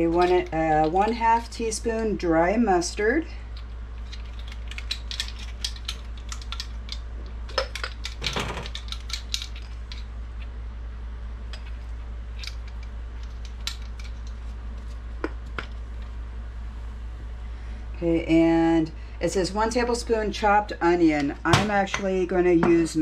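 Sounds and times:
steady low hum: 0.0s - 23.0s
plastic spoons clicking: 4.1s - 10.0s.

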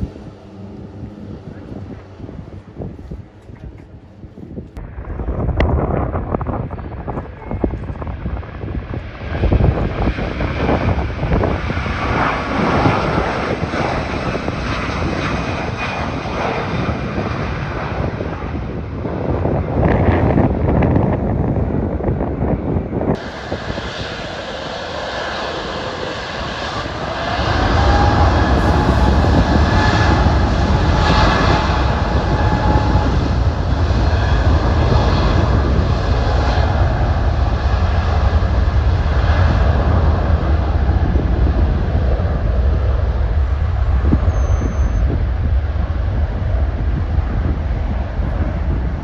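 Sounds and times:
jet engines roaring at takeoff: 0.0s - 49.0s
faint rising whine: 25.0s - 33.4s.

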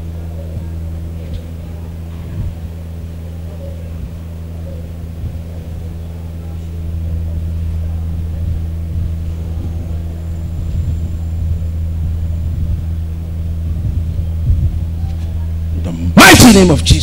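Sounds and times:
low hum: 0.0s - 17.0s
faint thumps: 4.8s - 5.9s, 7.2s - 15.8s.

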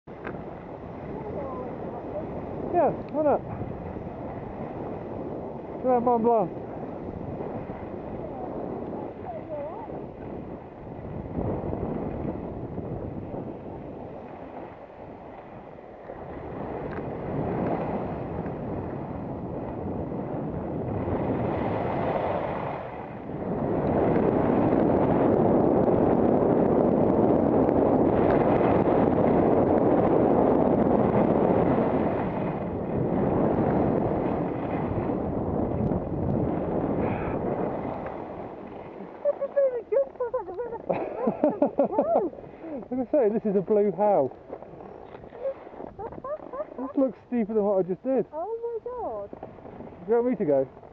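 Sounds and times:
wind rushing over microphone: 0.0s - 50.9s
skis scraping on snow: 36.6s - 41.0s, 42.3s - 50.9s.

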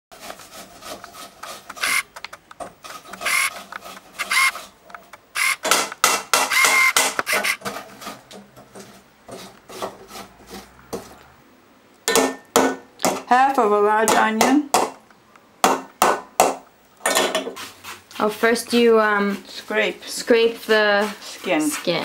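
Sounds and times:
onion rasping on metal grater: 0.1s - 2.1s, 6.5s - 10.8s, 17.5s - 22.0s.

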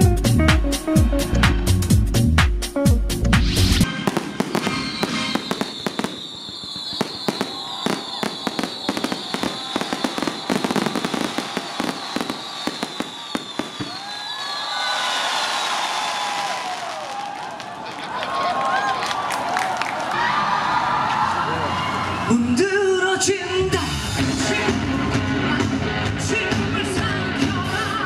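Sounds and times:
electronic music with heavy beat: 0.0s - 3.9s
fireworks whistles: 3.8s - 17.2s
fireworks crackling and banging: 3.8s - 18.0s.

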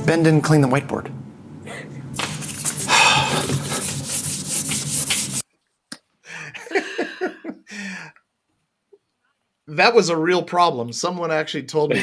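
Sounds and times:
marker rasping on whiteboard: 2.2s - 5.4s.

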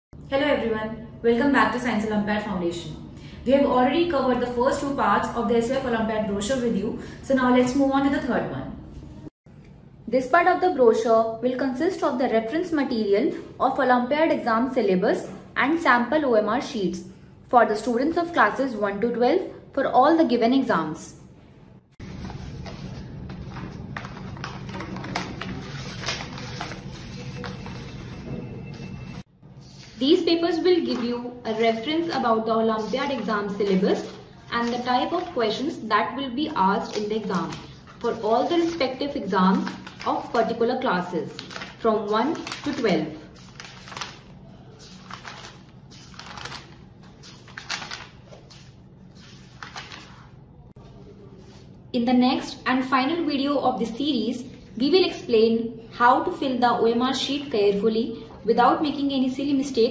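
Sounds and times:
paper rustling and crinkling: 22.0s - 30.0s, 30.8s - 35.5s, 36.7s - 50.4s.

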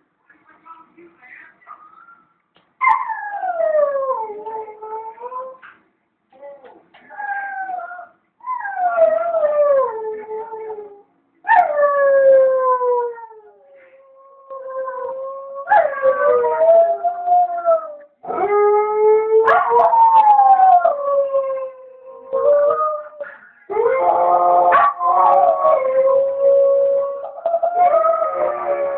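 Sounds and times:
dogs howling: 6.4s - 28.9s.

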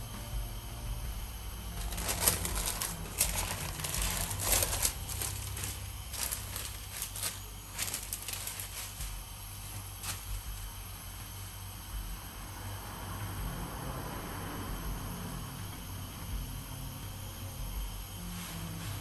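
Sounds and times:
low steady hum: 0.0s - 19.0s
baking paper rustling: 1.8s - 10.6s.

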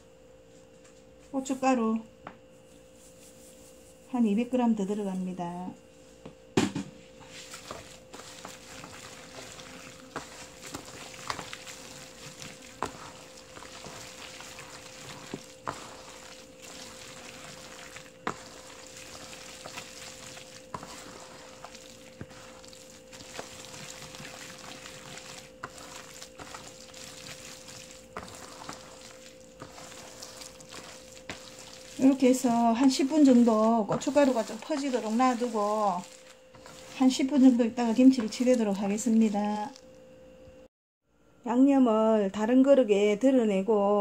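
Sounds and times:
hand squishing wet paste: 7.2s - 39.9s.

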